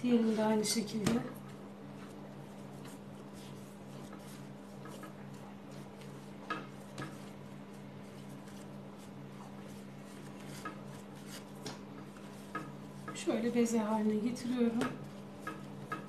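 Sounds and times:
dough tapping on glass board: 14.7 - 16.0.

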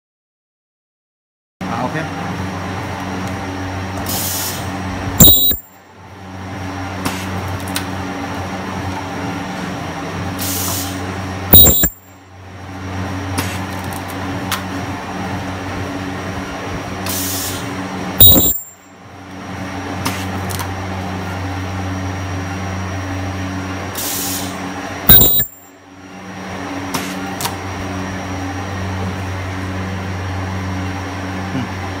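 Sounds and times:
low machine hum: 1.6 - 32.0
high-pitched ultrasonic weld bursts: 5.2 - 5.7, 11.5 - 12.0, 18.2 - 18.8, 25.1 - 25.6.

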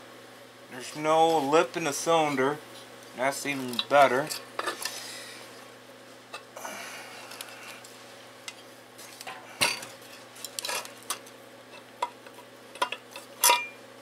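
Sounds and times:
metal clinks and scraping: 12.8 - 13.8.

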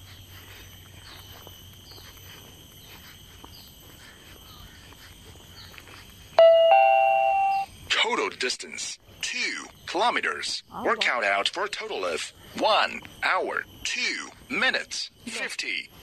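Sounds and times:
small chirps: 0.0 - 7.8
faint outdoor ambience: 0.0 - 16.0
two-note notification chime: 6.4 - 7.7.

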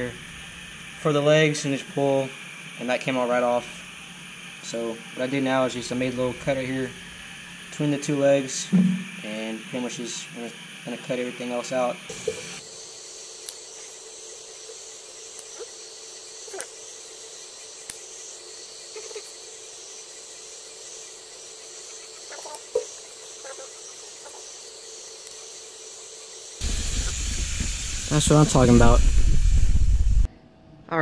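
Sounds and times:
night insects chirring: 0.0 - 30.2
faint hum: 0.0 - 31.0
knife and shears snipping: 15.3 - 15.6.

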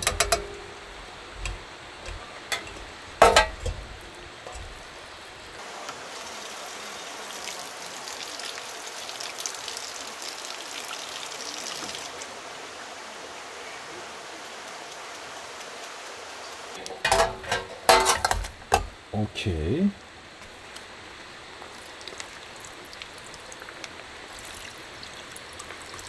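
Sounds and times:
knocks and clatters of handling: 0.0 - 5.0, 16.9 - 19.0
running water splashing: 0.0 - 18.9, 21.6 - 26.0.

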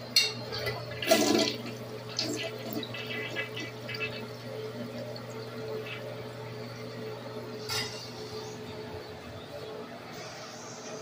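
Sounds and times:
toilet refilling: 0.0 - 7.6
water swirling in bowl: 0.5 - 7.6.

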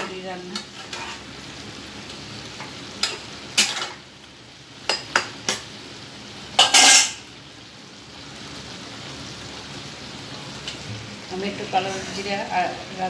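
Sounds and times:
vegetables sizzling in a wok: 0.0 - 13.0
spatula scraping a pan: 0.6 - 1.3, 6.6 - 7.2, 11.7 - 12.5.

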